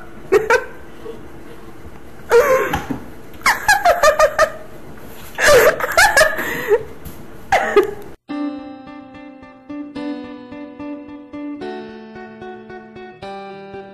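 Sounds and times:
person laughing: 5.4 - 6.9
acoustic guitar music: 8.3 - 13.9.

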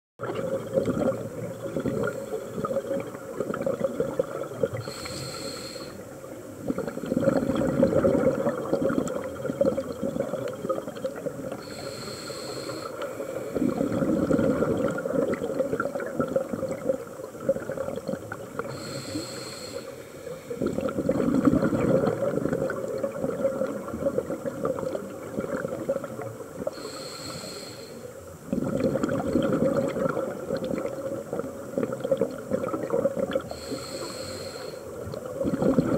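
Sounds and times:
exhaled bubbles rushing: 0.2 - 4.9, 6.6 - 11.7, 13.6 - 18.8, 20.6 - 26.7, 28.5 - 33.5, 35.0 - 35.9
regulator inhale hiss: 4.8 - 6.2, 11.5 - 14.0, 18.6 - 20.7, 26.6 - 28.2, 33.5 - 35.1.

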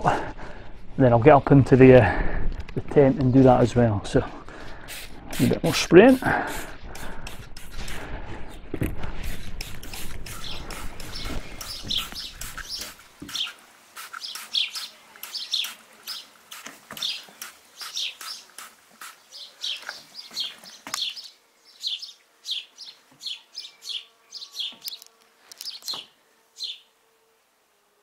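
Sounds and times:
spray bottle squirting: 4.8 - 8.1, 9.2 - 19.8.

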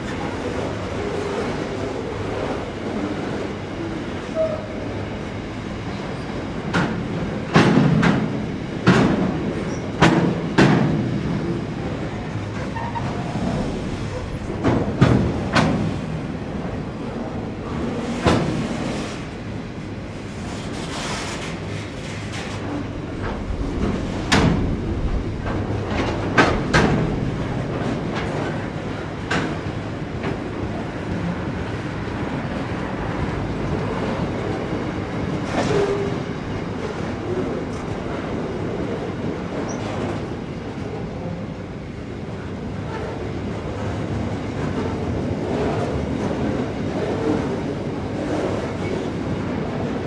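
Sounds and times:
freight train rumbling on rails: 0.0 - 50.0
wheels clacking over rail joints: 20.5 - 30.9.

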